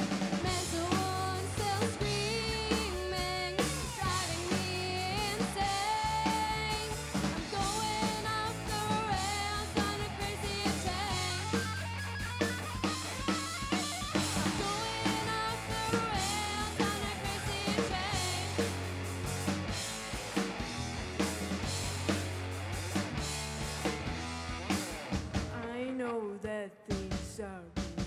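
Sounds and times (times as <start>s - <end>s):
rock band playing: 0.0s - 25.8s
bass line: 0.0s - 25.9s
woman singing: 0.4s - 11.6s, 14.3s - 18.7s, 25.5s - 28.0s.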